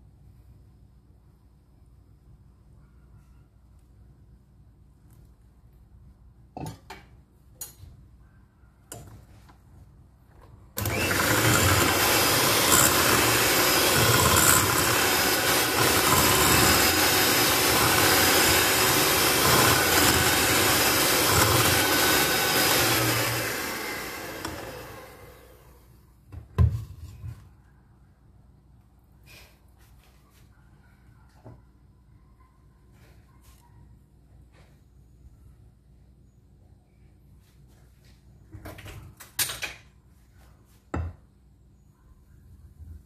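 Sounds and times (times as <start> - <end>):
electric hand mixer whirring: 10.8 - 25.8.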